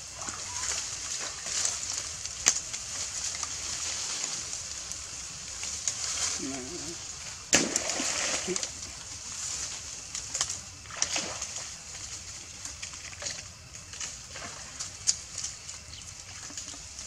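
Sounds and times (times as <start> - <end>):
steady faint hiss: 0.0 - 17.0
monkeys splashing in water: 7.5 - 9.0, 10.8 - 16.7.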